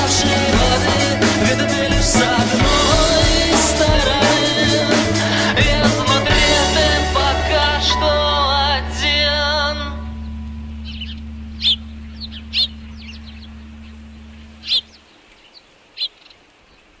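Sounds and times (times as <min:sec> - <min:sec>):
person singing wavering line: 0:00.0 - 0:14.9
low drone: 0:00.0 - 0:15.0
bird chirps: 0:10.0 - 0:16.8.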